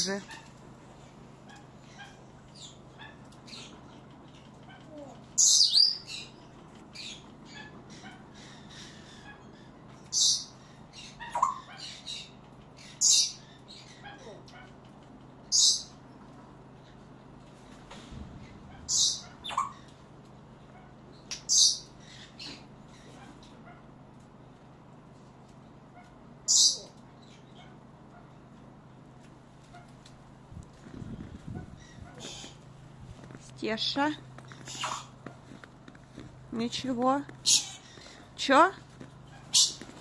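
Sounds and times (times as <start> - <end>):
parrots screeching: 7.0 - 14.3, 18.7 - 19.9, 34.5 - 35.2, 37.4 - 38.3, 39.3 - 39.9
parrot harsh squawk: 11.0 - 12.3, 18.7 - 19.8, 34.6 - 35.2
parrot chirps and whistles: 18.9 - 19.8
faint parrot calls: 34.5 - 35.2.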